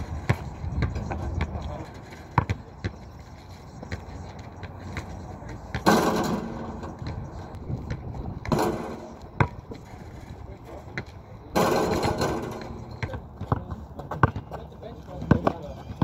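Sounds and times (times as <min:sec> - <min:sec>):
ball bouncing on asphalt: 0:00.1 - 0:03.1, 0:03.7 - 0:09.9, 0:10.9 - 0:16.0
basketball clanging on rim: 0:05.7 - 0:07.1, 0:08.4 - 0:09.2, 0:11.6 - 0:13.1.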